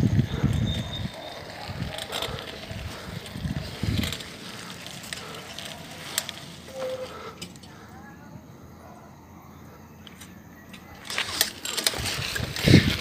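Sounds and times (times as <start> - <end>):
wind buffeting microphone: 0.0 - 6.4, 11.8 - 13.0.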